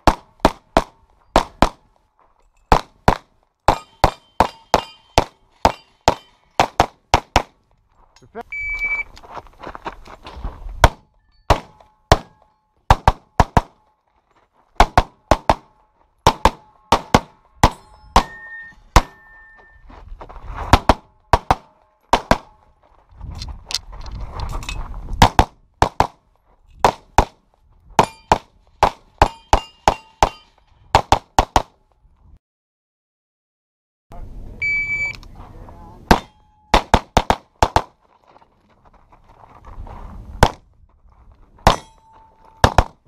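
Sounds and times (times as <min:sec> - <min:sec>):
pistol firing rapid shots: 0:12.9 - 0:13.8, 0:14.8 - 0:15.7, 0:16.3 - 0:17.3, 0:20.8 - 0:22.5, 0:36.1 - 0:37.9, 0:42.6 - 0:43.0.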